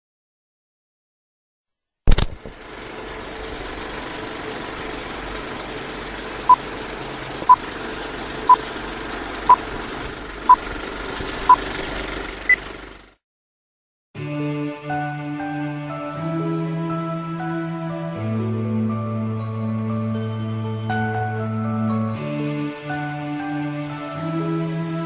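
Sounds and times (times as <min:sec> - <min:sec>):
sharp click: 0:02.1 - 0:02.5.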